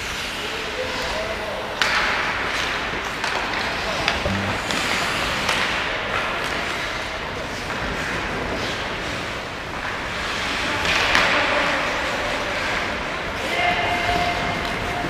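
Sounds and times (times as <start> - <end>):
knocks of sticks and puck: 1.8 - 3.6, 9.7 - 12.8
skates scraping ice: 7.6 - 14.9.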